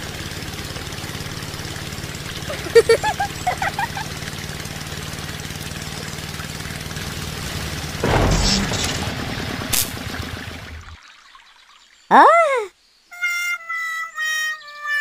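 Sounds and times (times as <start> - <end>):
sharp crack: 8.0 - 10.9.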